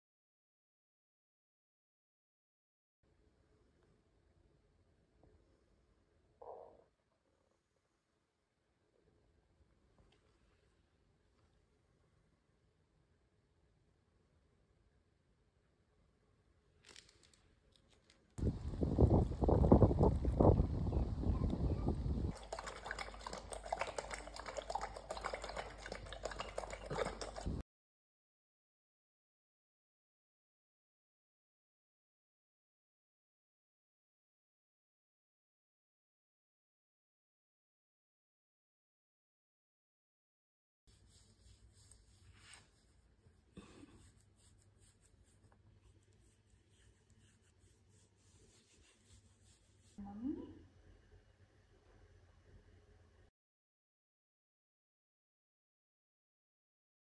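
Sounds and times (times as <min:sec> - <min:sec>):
liquid dripping and splashing: 0:22.3 - 0:27.6
hand rubbing dog fur: 0:40.9 - 0:50.0.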